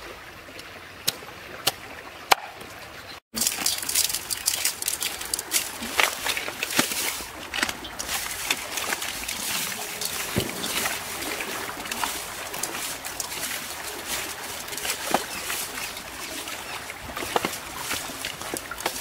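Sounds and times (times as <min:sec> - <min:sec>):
water squelching and sloshing: 0:00.0 - 0:19.0
fish pieces clicking on bowl: 0:03.4 - 0:08.2.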